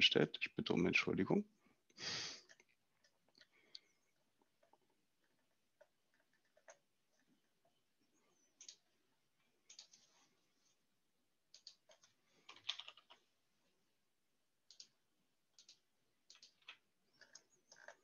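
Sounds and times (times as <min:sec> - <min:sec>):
keyboard typing: 0:02.4 - 0:07.8, 0:08.5 - 0:08.9, 0:09.6 - 0:10.1, 0:11.5 - 0:13.3, 0:14.6 - 0:18.0.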